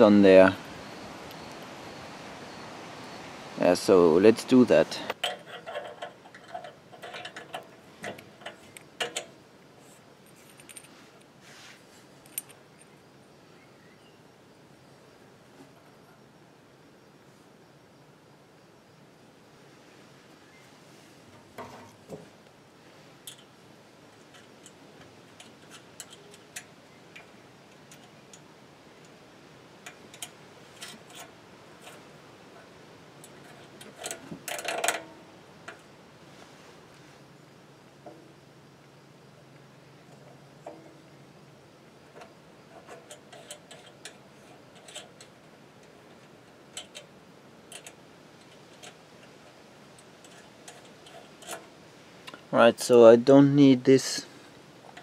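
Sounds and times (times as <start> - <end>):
light metal clicks and clinks: 5.0 - 9.4, 10.2 - 11.0, 12.2 - 13.0, 23.2 - 29.2, 29.8 - 35.9, 40.0 - 41.2, 42.1 - 52.5
metal clinks: 5.2 - 9.4, 10.2 - 11.0.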